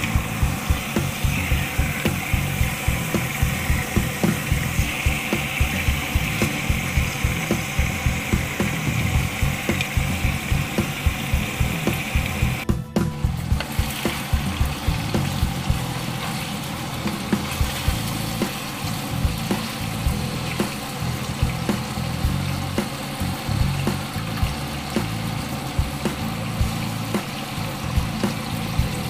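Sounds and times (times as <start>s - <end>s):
background music: 0.0s - 29.0s
meat sizzling in a pot: 0.0s - 29.0s.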